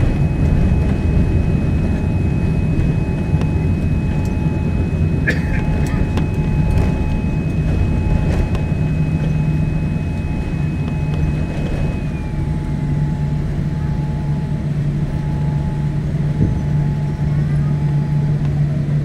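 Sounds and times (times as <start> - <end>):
airplane cabin low rumble: 0.0 - 19.0
jet engines whining: 0.0 - 19.0
high whine sliding down in pitch: 5.6 - 18.5.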